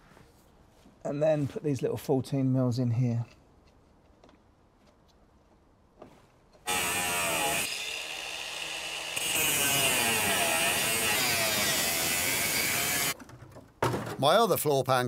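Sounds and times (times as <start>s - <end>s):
angle grinder cutting steel: 6.7s - 13.2s.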